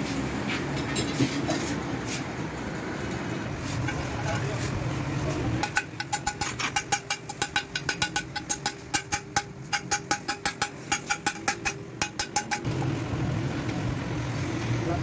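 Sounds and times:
hammer tapping on metal: 0:05.6 - 0:12.7.

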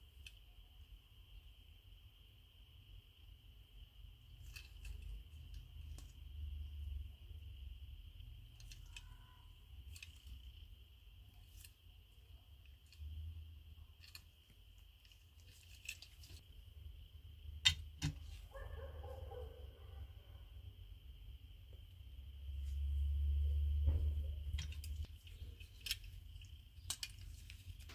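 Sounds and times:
faint high-pitched whine: 0:00.0 - 0:27.9
toy cars and packaging clicking: 0:04.3 - 0:06.2, 0:08.3 - 0:11.8, 0:12.5 - 0:16.5, 0:24.4 - 0:27.9.

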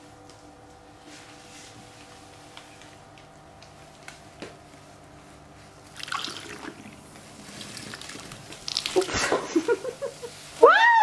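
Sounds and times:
liquid pouring through funnel: 0:05.9 - 0:09.6
fizzing and splashing: 0:05.9 - 0:09.7.

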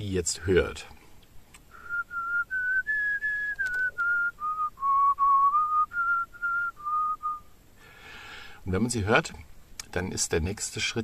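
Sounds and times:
person whistling a slow melody: 0:01.7 - 0:07.5.

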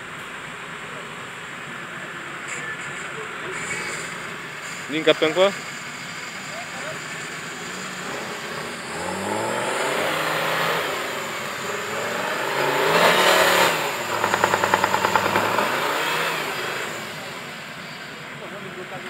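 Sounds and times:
off-road vehicle engine revving: 0:03.4 - 0:19.0
rapid pulsing: 0:05.8 - 0:17.7.

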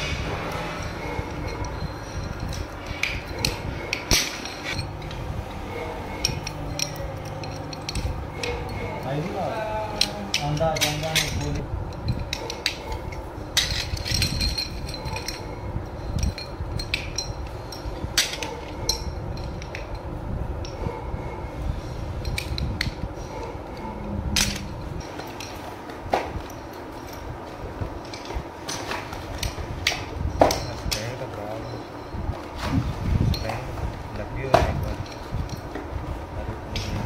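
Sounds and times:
metal brake shoes clinking: 0:00.0 - 0:20.9, 0:28.0 - 0:32.2.

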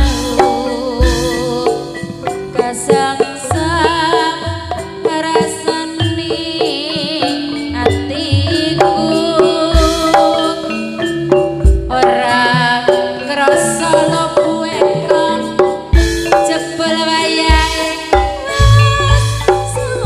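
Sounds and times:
band playing: 0:00.0 - 0:05.2, 0:07.5 - 0:20.0
hand drum beat: 0:00.0 - 0:20.0
low bass drum beats: 0:17.5 - 0:20.0.

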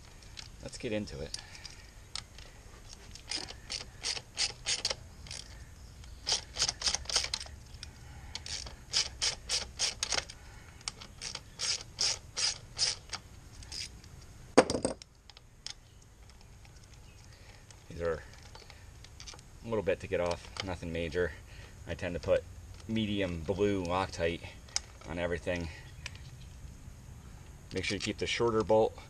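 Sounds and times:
ratchet wrench clicking: 0:03.2 - 0:07.5, 0:08.3 - 0:13.9.

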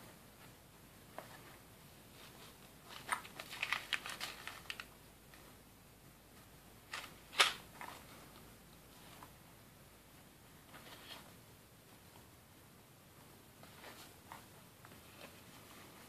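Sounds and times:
crackly rustles and clicks: 0:00.1 - 0:05.6, 0:06.3 - 0:09.4, 0:13.6 - 0:16.0.

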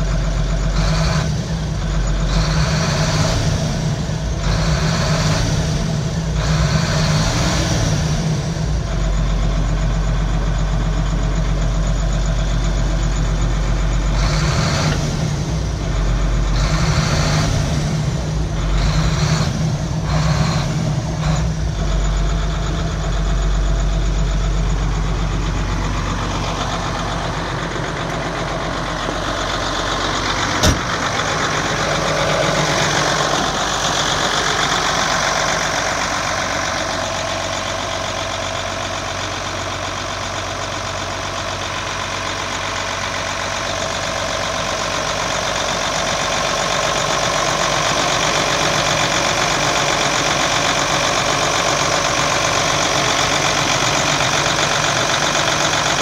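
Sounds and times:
diesel truck engine idling: 0:00.0 - 0:56.0
sharp knock: 0:30.6 - 0:30.9.

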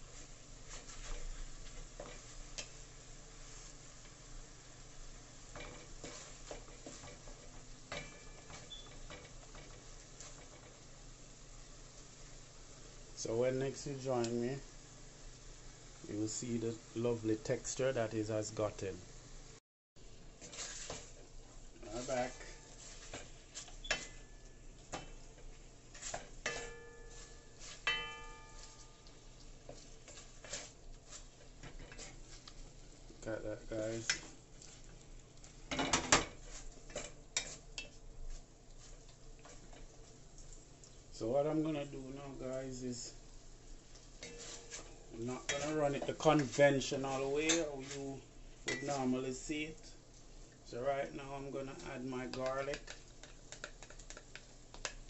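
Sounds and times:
meat sizzling in a pot: 0:00.0 - 0:55.0
pot ringing: 0:26.4 - 0:29.1.

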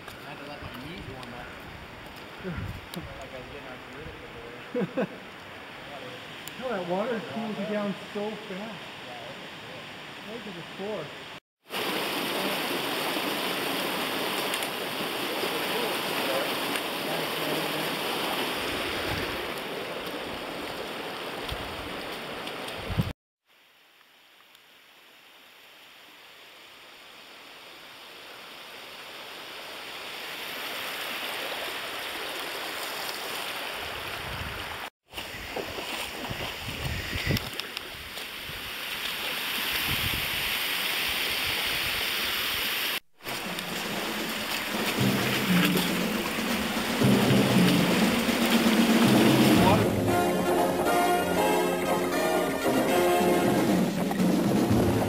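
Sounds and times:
creek water running: 0:00.0 - 0:55.0
low rumbling: 0:43.4 - 0:51.4.

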